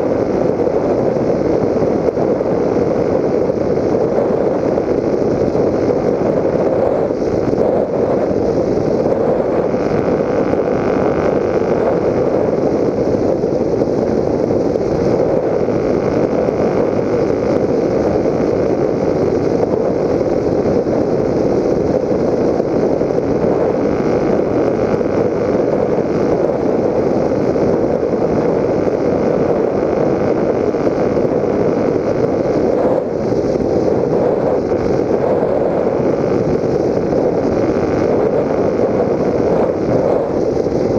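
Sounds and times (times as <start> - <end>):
electric motor and propeller: 0.0 - 40.9.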